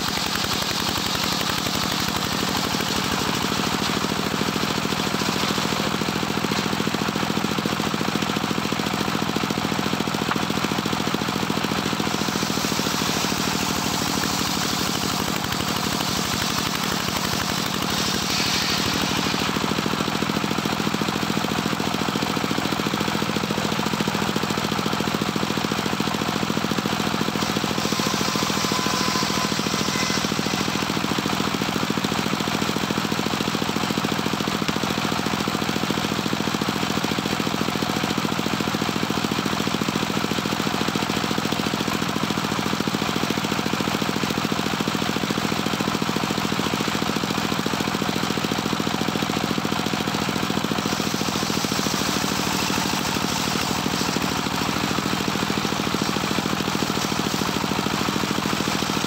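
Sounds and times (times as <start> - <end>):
circular sawmill cutting wood: 0.0 - 59.0.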